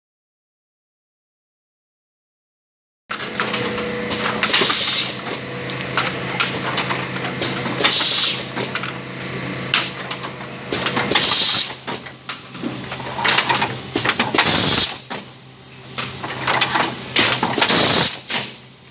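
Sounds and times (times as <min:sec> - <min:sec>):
machine motor and conveyor hum: 0:03.1 - 0:18.9
pneumatic air hisses: 0:04.5 - 0:05.2, 0:07.8 - 0:08.5, 0:11.1 - 0:11.8, 0:14.4 - 0:15.0, 0:17.6 - 0:18.3.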